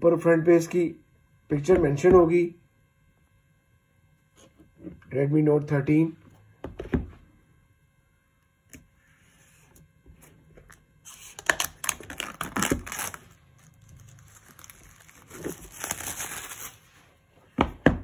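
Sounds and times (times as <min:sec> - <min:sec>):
plastic shrink-wrap crinkling: 0:11.1 - 0:16.9.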